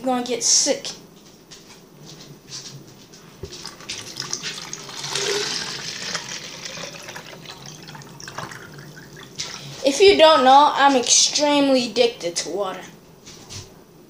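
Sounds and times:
water running from kitchen tap: 3.4 - 9.8.

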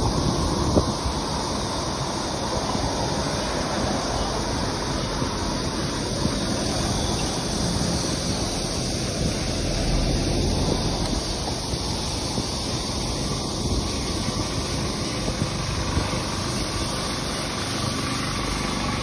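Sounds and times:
bicycle rolling rumble: 0.0 - 19.0
wind over microphone: 0.0 - 19.0.

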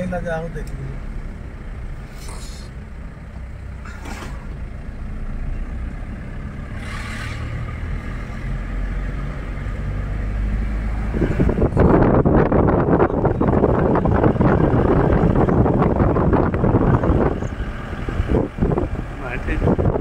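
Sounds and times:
car engine and road rumble: 0.0 - 20.0
short hisses: 2.0 - 2.8.

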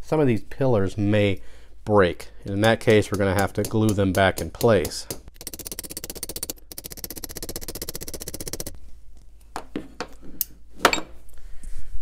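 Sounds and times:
small hammer tapping metal: 2.6 - 8.7.

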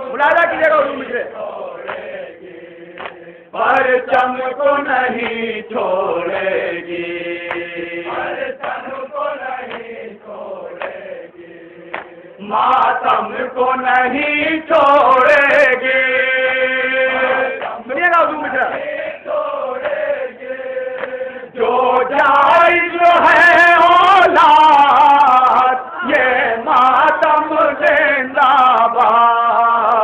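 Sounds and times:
man chanting through loudspeaker: 0.0 - 1.4, 16.6 - 18.8
voices chanting together: 0.0 - 30.0.

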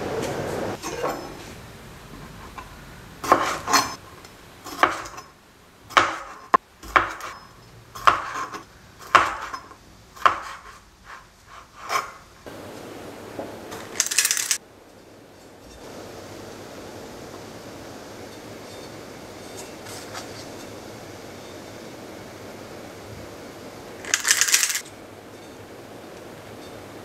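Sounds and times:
metallic scoop scrape: 13.9 - 14.6, 18.3 - 20.8.

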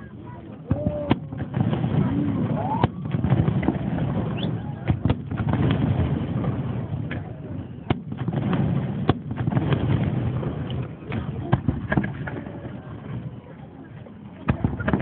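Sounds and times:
people talking: 0.0 - 3.1, 6.6 - 7.9, 10.8 - 15.0
fireworks bangs: 0.7 - 13.2, 14.4 - 15.0.

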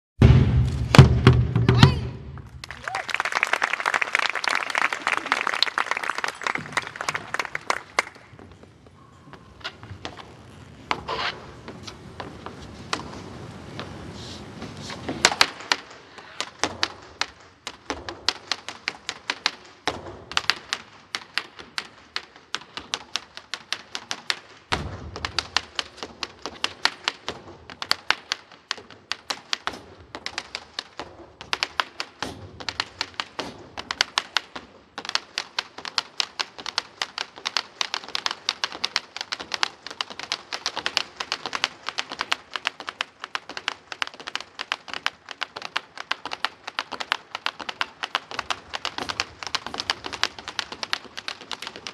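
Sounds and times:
heavy thud: 0.2 - 2.5
bolas clacking on wooden floor: 14.9 - 51.9
boots stomping on wooden stage: 24.7 - 51.9.

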